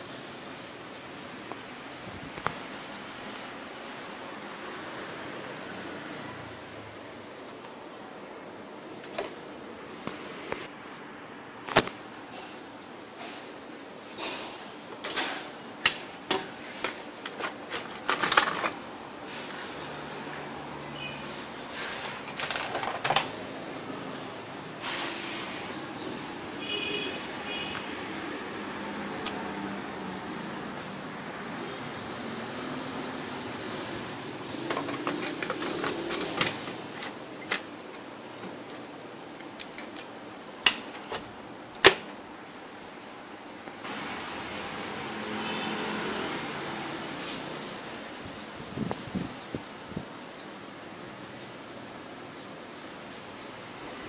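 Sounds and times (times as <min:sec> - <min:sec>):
plastic clicks and rattles: 0:15.9 - 0:18.8, 0:22.2 - 0:23.4
plastic rattling: 0:22.2 - 0:23.4.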